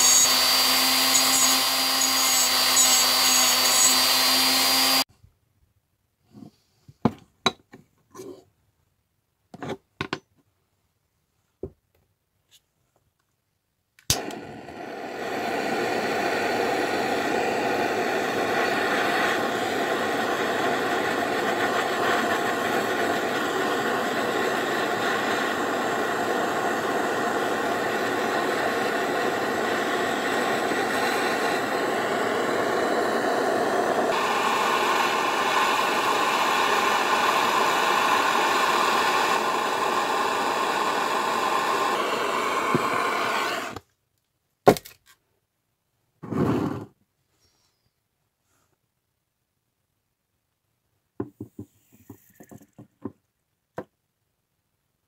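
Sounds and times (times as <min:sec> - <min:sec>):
gas blowtorch hissing: 0:00.0 - 0:05.1, 0:14.1 - 0:43.8.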